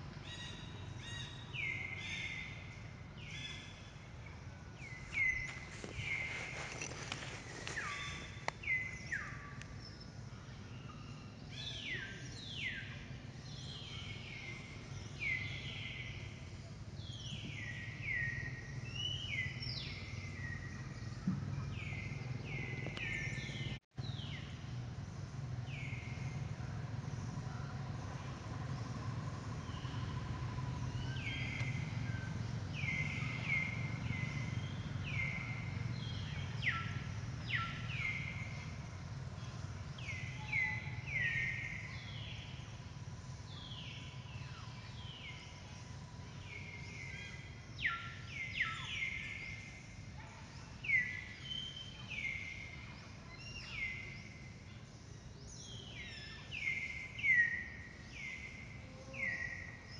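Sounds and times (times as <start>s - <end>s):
birds calling: 4.8s - 10.0s.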